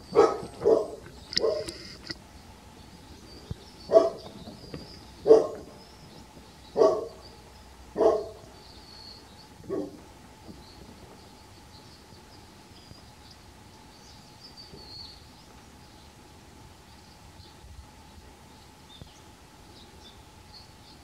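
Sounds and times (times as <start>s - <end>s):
dog barking: 0.1s - 1.8s, 3.9s - 4.3s, 5.2s - 5.7s, 6.8s - 7.2s, 8.0s - 8.5s, 9.7s - 10.0s.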